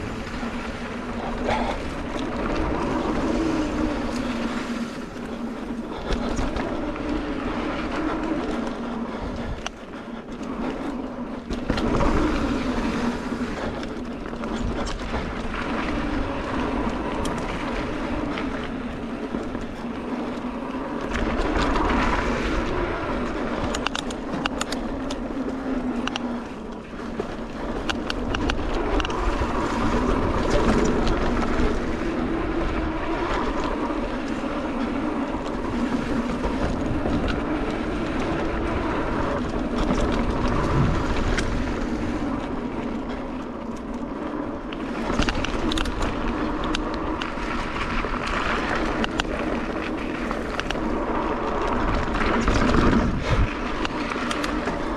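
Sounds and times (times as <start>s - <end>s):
bike rattling: 0.0s - 54.9s
wind rush on microphone: 0.0s - 54.9s.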